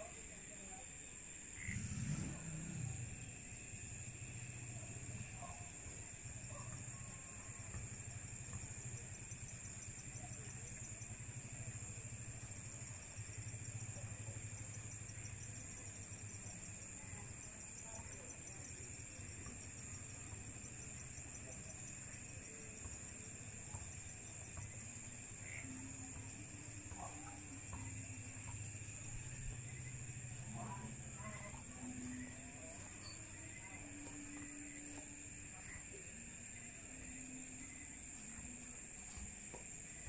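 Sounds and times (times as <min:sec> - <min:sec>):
insects trilling: 0:00.0 - 0:40.0
insect chirping rapidly: 0:08.0 - 0:40.0.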